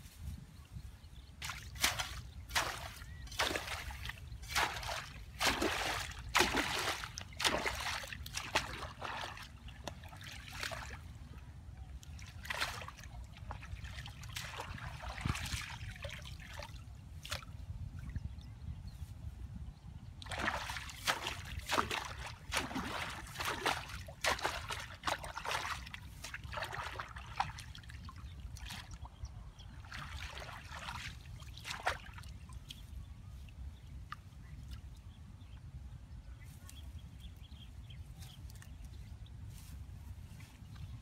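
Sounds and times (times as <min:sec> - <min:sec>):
water splashing: 0:01.4 - 0:11.0, 0:20.2 - 0:29.1, 0:29.8 - 0:32.4.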